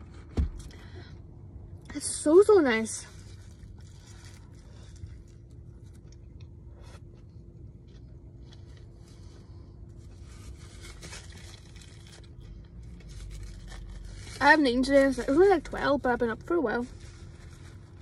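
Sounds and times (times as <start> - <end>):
faint steady hum: 0.0 - 18.0
paper wrapper crinkling: 10.2 - 15.5.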